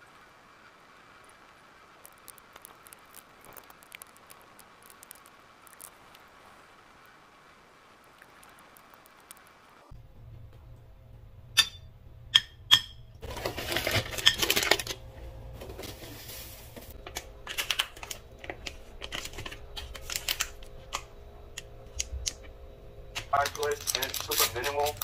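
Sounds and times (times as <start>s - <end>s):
low steady hum: 0.0s - 25.0s
packaging rustling and clicking: 13.2s - 15.0s, 15.6s - 21.1s, 23.2s - 25.0s
paper bag rustling and crinkling: 13.2s - 20.9s, 23.2s - 25.0s.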